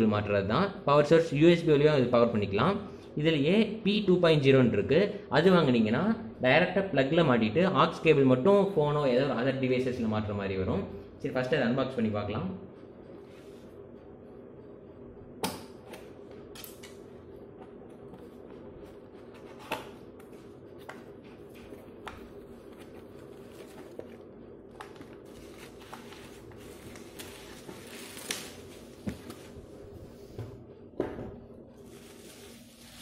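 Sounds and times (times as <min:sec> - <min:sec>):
steady low hum: 0:00.0 - 0:33.0
cardboard and plastic rustling: 0:21.0 - 0:29.6, 0:31.8 - 0:33.0.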